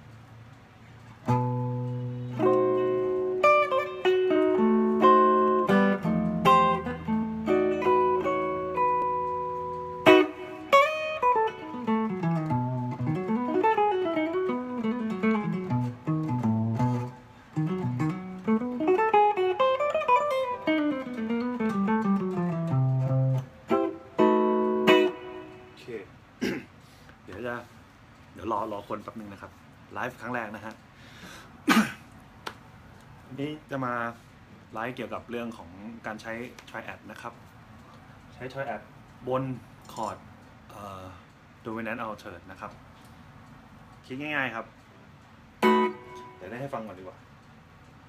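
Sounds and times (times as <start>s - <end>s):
electric guitar improvising: 1.1s - 26.0s, 45.6s - 46.7s.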